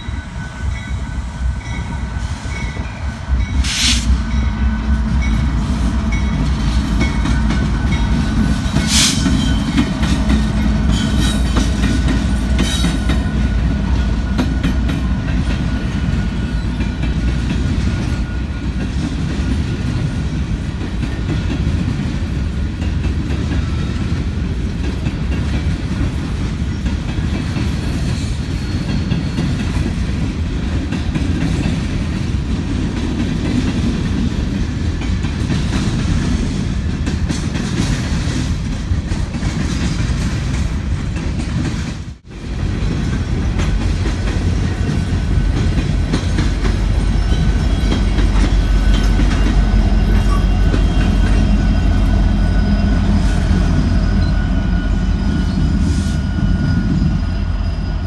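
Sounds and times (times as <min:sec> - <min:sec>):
diesel locomotives passing: 0:00.0 - 0:58.0
freight train rumbling: 0:00.0 - 0:58.0
wheels clickety-clack on rails: 0:00.0 - 0:58.0.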